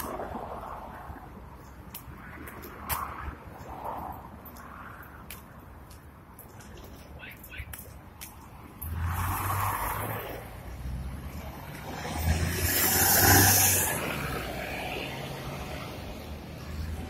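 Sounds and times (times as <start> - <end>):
bus engine passing: 8.6 - 17.0.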